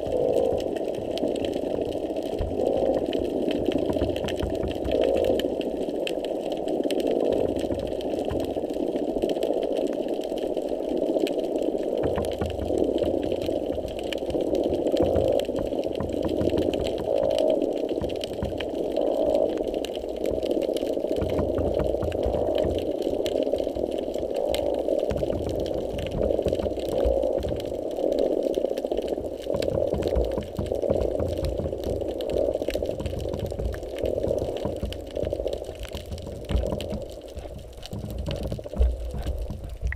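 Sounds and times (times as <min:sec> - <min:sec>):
low underwater thumps: 0:00.0 - 0:05.4, 0:07.3 - 0:08.5, 0:12.0 - 0:18.8, 0:21.2 - 0:22.9, 0:25.1 - 0:27.8, 0:29.4 - 0:39.9
underwater pulsing hum: 0:00.0 - 0:39.9.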